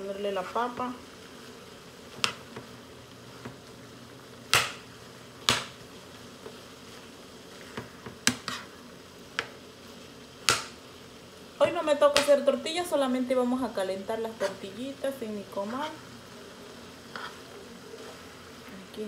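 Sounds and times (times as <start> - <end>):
sausage sizzling: 0.0 - 19.0
metal spoon scraping a skillet: 7.6 - 8.8, 14.3 - 14.7, 17.1 - 18.3.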